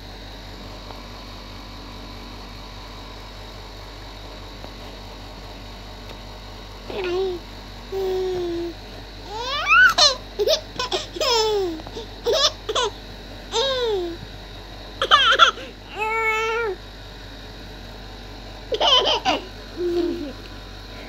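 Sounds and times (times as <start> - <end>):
baby giggling and babbling: 6.9 - 7.4, 8.0 - 12.9, 18.7 - 20.4.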